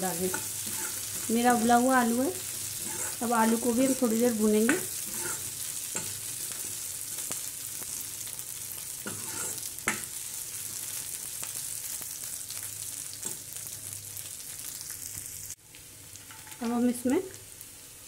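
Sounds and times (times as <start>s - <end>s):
potatoes sizzling in oil: 0.0s - 18.0s
ladle scraping pan: 0.3s - 1.3s, 2.8s - 3.2s, 5.0s - 6.2s, 9.1s - 10.0s.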